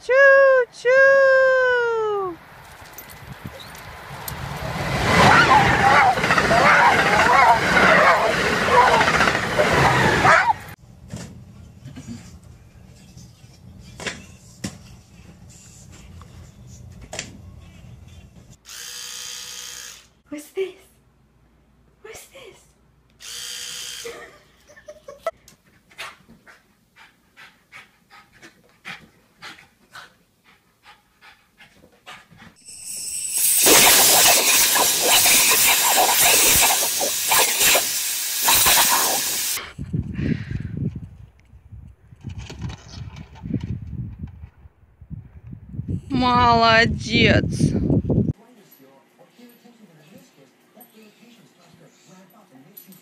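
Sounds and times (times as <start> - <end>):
garden hose spraying water: 32.9 - 39.6.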